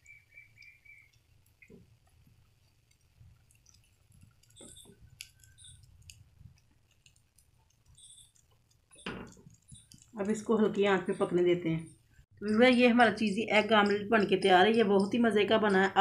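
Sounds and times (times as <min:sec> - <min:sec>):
oil crackling in frying pan: 0:00.0 - 0:16.0
plastic spatula pressing eggs: 0:02.9 - 0:10.4.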